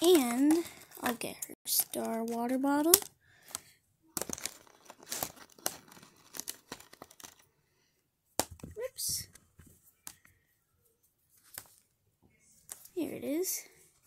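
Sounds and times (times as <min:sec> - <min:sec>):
packaging rustle: 0:04.2 - 0:07.5
plastic packaging crinkling: 0:04.2 - 0:07.5.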